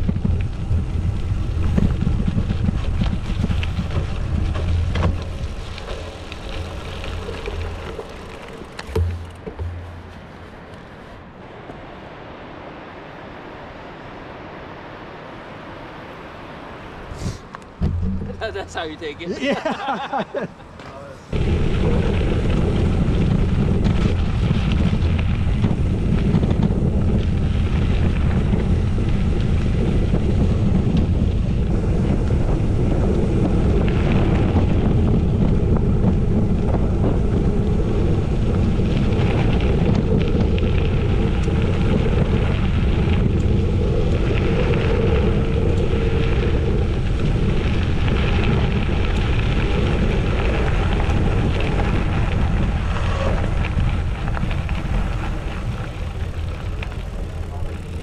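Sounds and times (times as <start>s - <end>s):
wind rumbling on microphone: 0.0s - 58.0s.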